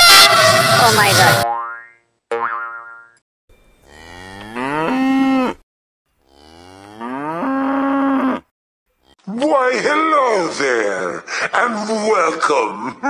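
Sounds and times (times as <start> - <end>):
cow mooing: 3.8 - 5.6, 6.2 - 9.2.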